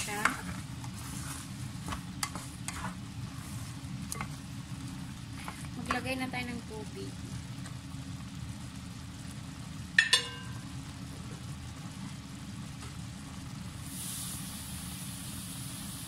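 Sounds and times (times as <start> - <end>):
food simmering in a pot: 0.0 - 16.0
steady low hum: 0.0 - 16.0
metallic clink: 10.0 - 10.6.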